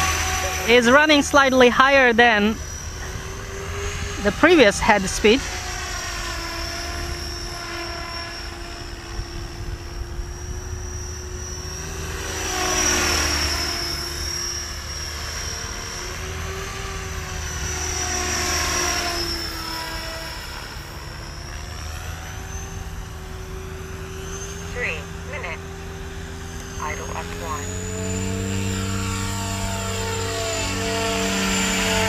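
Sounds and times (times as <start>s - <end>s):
rc helicopter motor whining: 0.0s - 32.0s
rotor blades thrumming: 0.0s - 32.0s.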